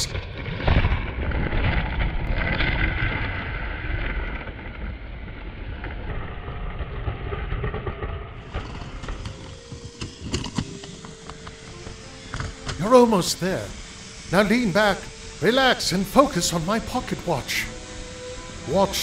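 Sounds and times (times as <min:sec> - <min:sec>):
toy coaster rolling on plastic track: 0:00.0 - 0:19.0.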